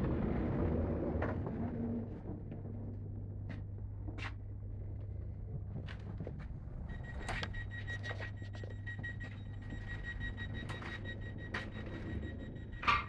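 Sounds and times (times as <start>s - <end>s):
train electrical hum: 0.0s - 13.0s
door warning beeping: 6.8s - 13.0s.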